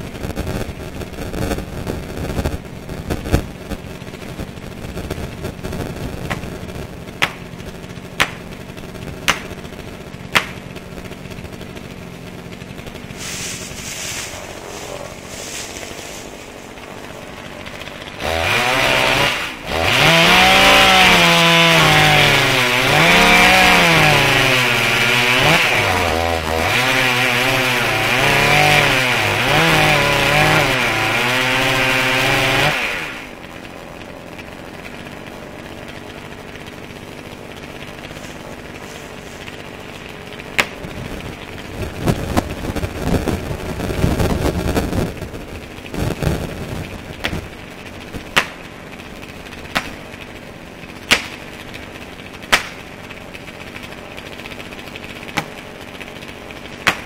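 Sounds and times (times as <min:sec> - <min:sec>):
chainsaw cutting at full throttle: 0:00.0 - 0:57.0
chainsaw idling: 0:00.0 - 0:57.0
sharp knocks: 0:06.3 - 0:06.5, 0:07.2 - 0:07.5, 0:08.2 - 0:08.5, 0:09.2 - 0:09.6, 0:10.3 - 0:10.6, 0:48.3 - 0:48.6, 0:49.7 - 0:50.0, 0:51.1 - 0:51.4, 0:55.4 - 0:55.6.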